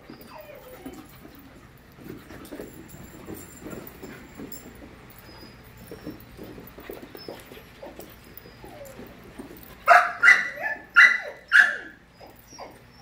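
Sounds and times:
puppy play noises: 0.0 - 13.0
puppy barking: 9.9 - 12.8.

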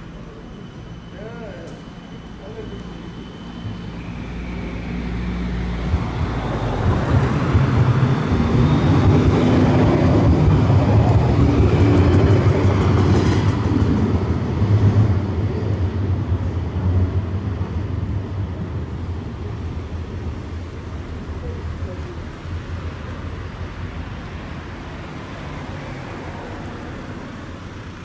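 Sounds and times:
tram wheels rumbling on rails: 0.0 - 28.0.

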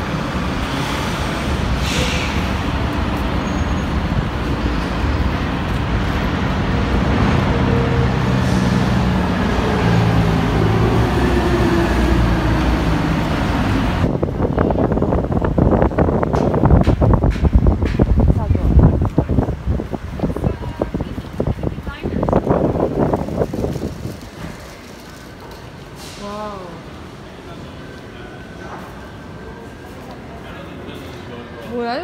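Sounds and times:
heavy vehicle engine drone: 0.0 - 31.5
road traffic passing: 0.0 - 32.0.

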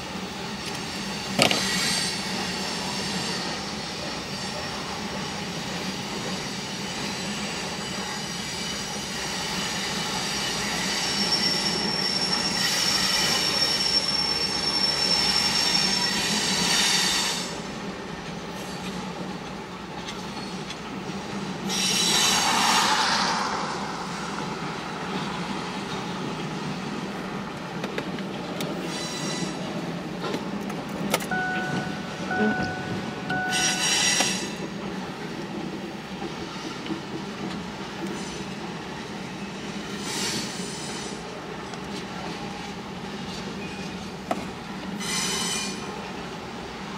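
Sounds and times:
train wheels rumbling on rail: 0.0 - 46.9
wheel squeal: 0.8 - 17.5, 21.7 - 24.2, 28.8 - 29.7.

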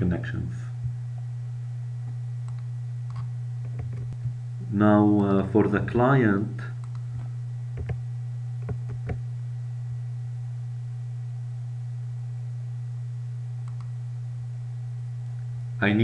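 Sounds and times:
steady low hum: 0.0 - 16.0
faint clicks: 6.8 - 7.0, 13.6 - 13.9.

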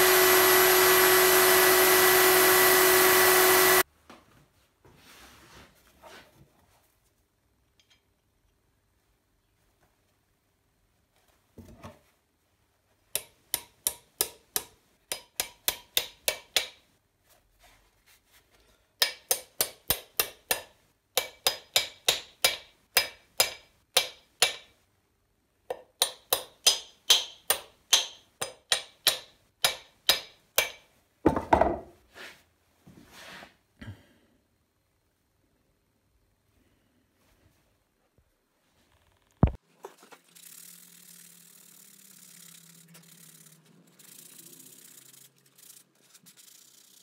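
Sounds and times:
hammer striking metal: 19.0 - 24.7, 26.0 - 30.8.

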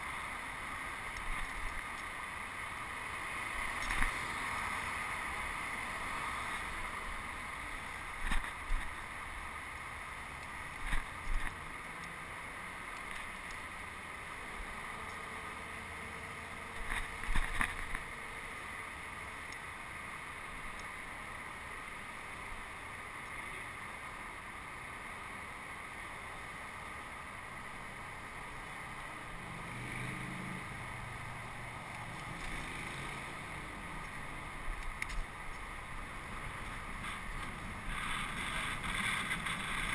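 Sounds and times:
wheels rolling on paving: 0.0 - 24.4, 25.4 - 39.9
wind on microphone: 36.4 - 39.9.

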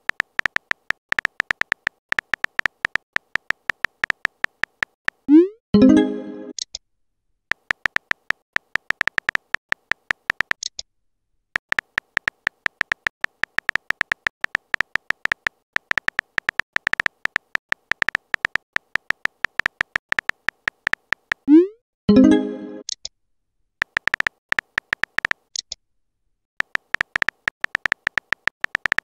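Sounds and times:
phone keyboard tap clicks: 0.1 - 5.2, 7.5 - 10.7, 11.6 - 21.4, 23.8 - 25.4, 26.6 - 29.0.

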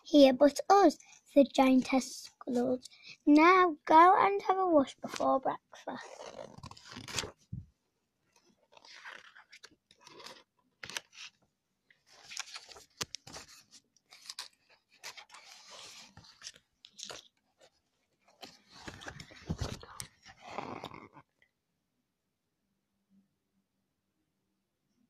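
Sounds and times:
paper pages rustling: 4.9 - 21.0.

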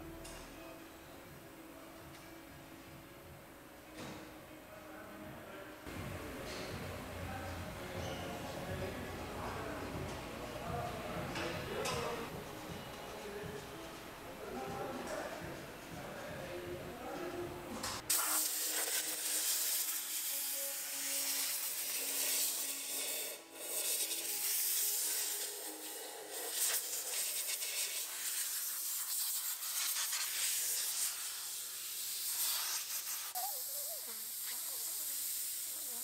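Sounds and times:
compressed air gun hissing: 18.1 - 20.3, 20.9 - 36.0.

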